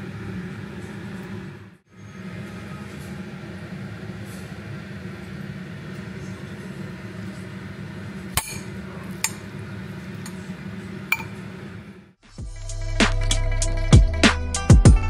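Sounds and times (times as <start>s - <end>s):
dishes and utensils clinking: 8.4s - 9.5s, 11.1s - 11.4s.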